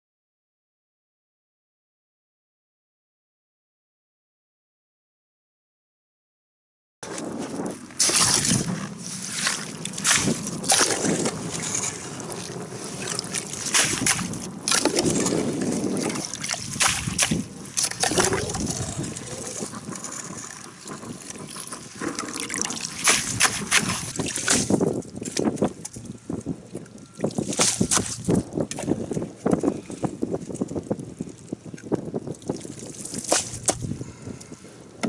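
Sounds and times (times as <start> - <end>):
water sloshing through scoop: 8.0 - 26.0, 27.2 - 29.7, 32.3 - 33.9.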